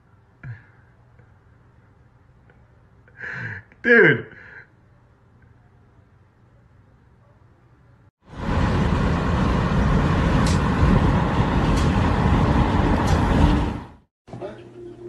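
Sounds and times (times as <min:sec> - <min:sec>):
road noise: 0:08.2 - 0:14.1
wind rushing past car window: 0:08.3 - 0:14.0.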